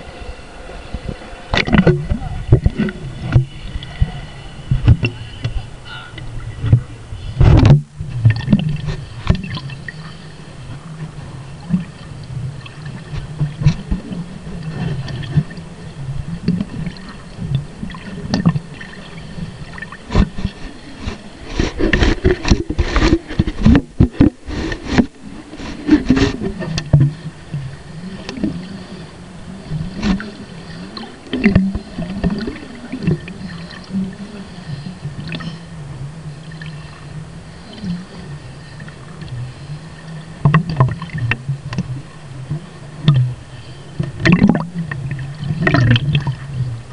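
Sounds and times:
muffled underwater rumble: 0.0s - 46.9s
water gurgling: 0.0s - 46.9s.

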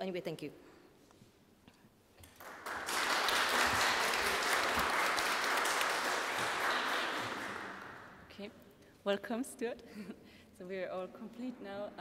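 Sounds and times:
people clapping: 2.2s - 8.3s.

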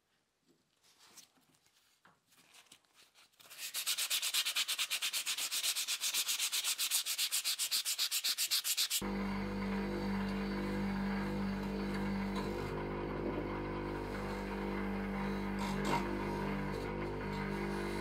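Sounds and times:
electric motor humming: 9.0s - 18.0s.

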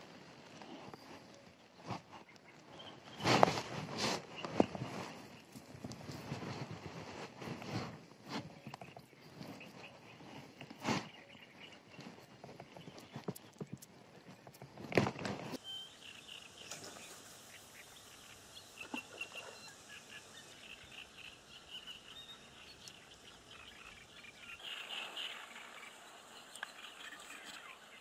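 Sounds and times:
birds chirping: 0.0s - 28.0s
hands clicking and rustling: 1.9s - 15.6s.

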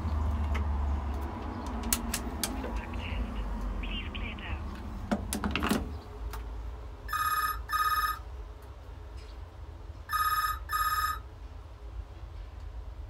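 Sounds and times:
payphone electronic double ring: 7.1s - 8.2s, 10.1s - 11.2s.

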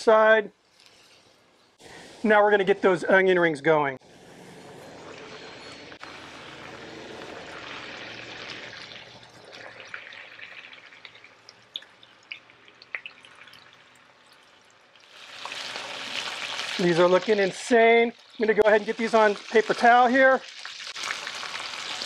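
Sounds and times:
onion rings deep-frying sizzle: 4.8s - 22.0s.

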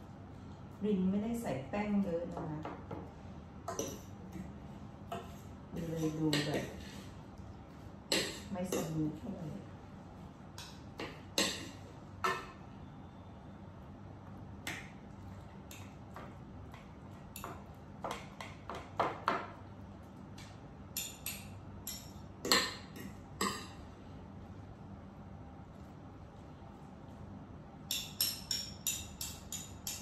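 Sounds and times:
utensils clinking against dishes: 20.9s - 23.8s, 27.9s - 30.0s.

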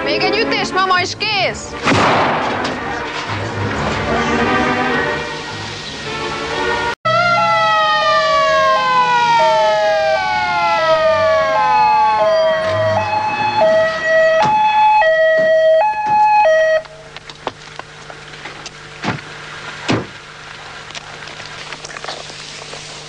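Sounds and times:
falling siren tone: 4.3s - 17.0s
two-tone siren: 6.6s - 17.0s.

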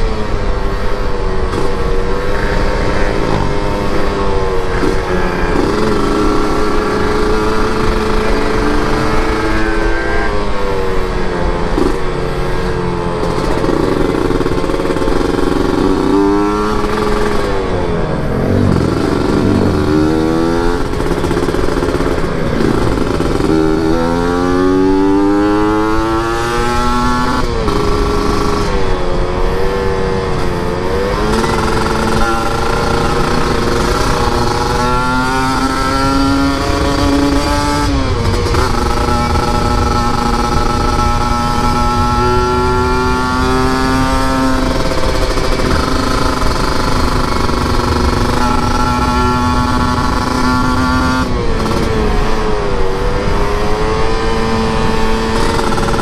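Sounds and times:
motorcycle engine revving: 0.0s - 56.0s.

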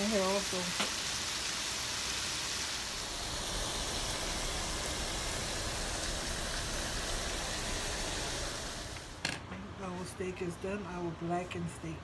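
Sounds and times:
shrimp sizzling in a pan: 0.0s - 9.2s.

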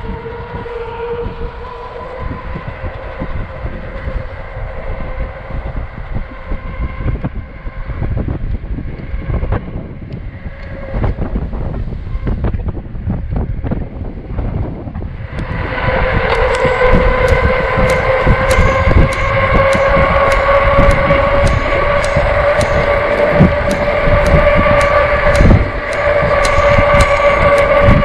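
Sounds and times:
electric bike motor whine: 0.0s - 28.0s
wind rumble on microphone: 0.0s - 28.0s
faint regular ticking: 16.2s - 28.0s.

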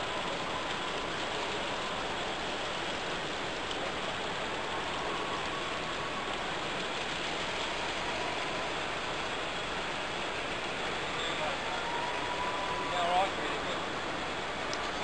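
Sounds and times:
distant crowd noise: 0.0s - 15.0s.

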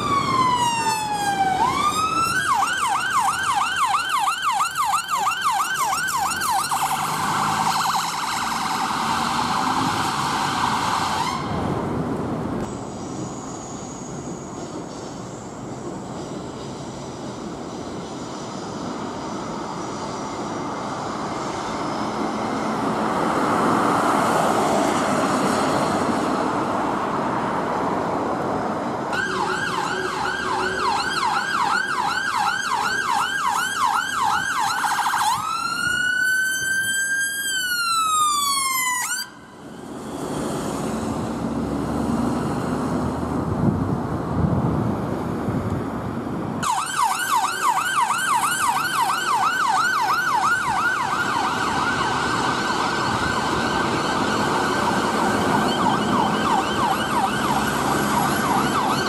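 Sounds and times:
ambulance siren yelp and wail: 0.0s - 11.8s, 29.1s - 40.0s, 46.6s - 59.0s
road traffic noise: 0.0s - 59.0s.

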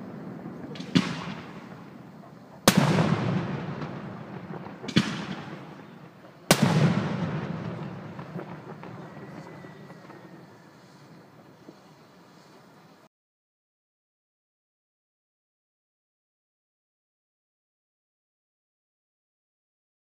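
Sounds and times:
rumbling echo: 0.0s - 10.5s
firework bangs: 0.0s - 12.5s.

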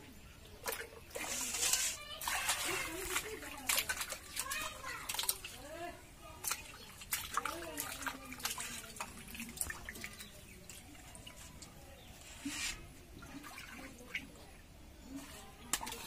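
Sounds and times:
water sloshing and dripping: 0.0s - 16.0s
water poured out of bowl: 0.7s - 5.5s.

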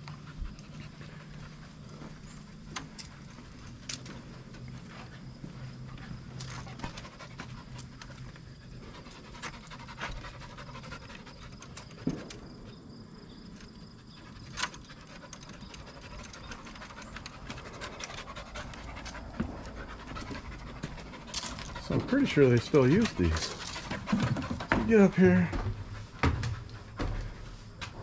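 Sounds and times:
puppy panting: 0.0s - 12.5s, 13.6s - 28.0s.

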